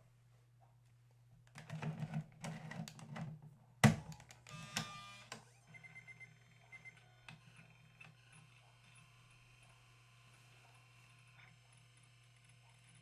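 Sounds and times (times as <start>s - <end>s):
disk drive whine: 4.4s - 13.0s.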